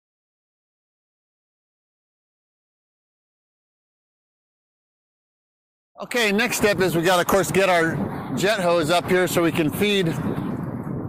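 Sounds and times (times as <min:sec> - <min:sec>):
man speaking: 0:06.0 - 0:10.2.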